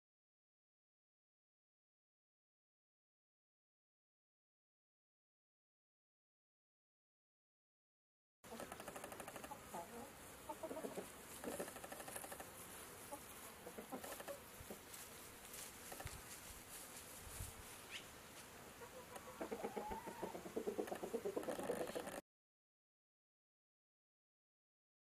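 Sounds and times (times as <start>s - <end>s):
chickens clucking: 8.5s - 15.0s, 18.8s - 22.2s.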